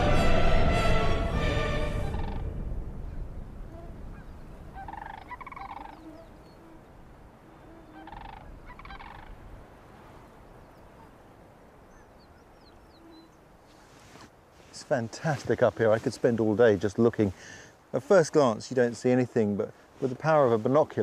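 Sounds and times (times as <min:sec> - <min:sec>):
cranes calling: 0:01.9 - 0:02.5, 0:03.1 - 0:09.5
small birds chirping: 0:03.7 - 0:09.4, 0:11.8 - 0:14.7.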